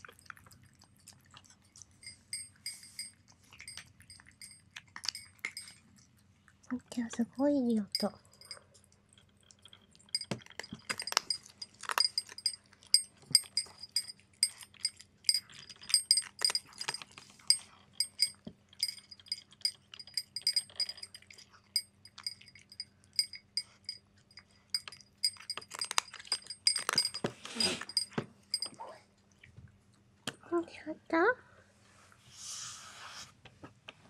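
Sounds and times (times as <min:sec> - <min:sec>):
cat crunching dry kibble: 0:00.0 - 0:06.9, 0:08.1 - 0:22.8, 0:24.4 - 0:28.1
kibble clinking in ceramic bowl: 0:02.0 - 0:05.8, 0:10.0 - 0:28.8.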